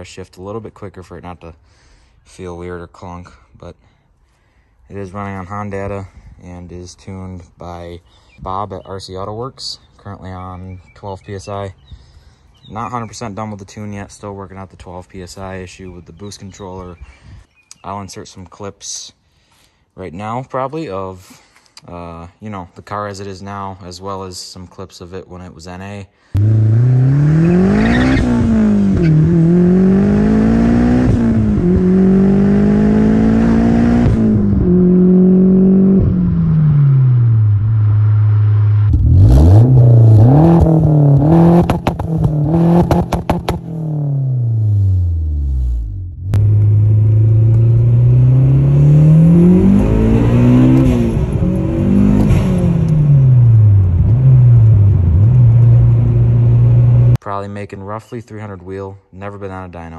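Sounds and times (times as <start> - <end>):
car engine accelerating and revving: 26.4 - 57.2.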